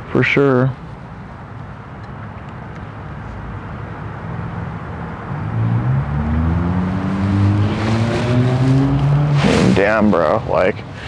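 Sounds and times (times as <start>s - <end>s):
outdoor background noise: 0.0s - 11.0s
vehicle engine accelerating: 5.3s - 10.4s.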